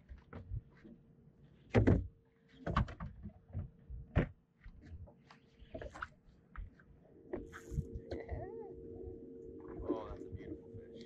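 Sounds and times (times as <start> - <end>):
knocks and thumps on boat: 1.7 - 6.7
faint steady hum: 4.9 - 11.0.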